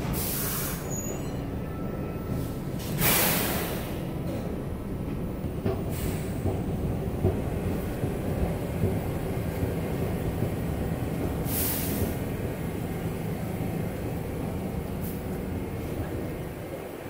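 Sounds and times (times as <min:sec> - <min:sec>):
air brakes hissing: 0:00.0 - 0:01.4, 0:02.3 - 0:04.4, 0:05.8 - 0:06.5, 0:11.4 - 0:12.5, 0:15.0 - 0:15.3
subway trains rumbling: 0:00.0 - 0:17.0.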